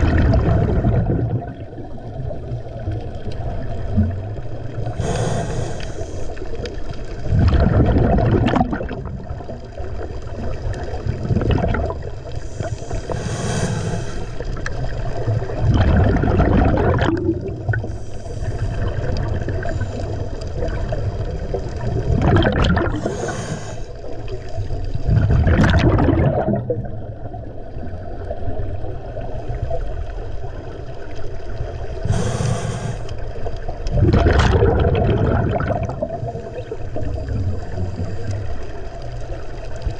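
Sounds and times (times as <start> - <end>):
bubbling exhale: 0.0 - 1.8, 3.9 - 9.5, 10.5 - 27.0, 31.9 - 38.9
hissing regulator inhale: 4.8 - 6.7, 12.3 - 14.6, 17.8 - 20.4, 22.9 - 24.2, 32.0 - 33.4.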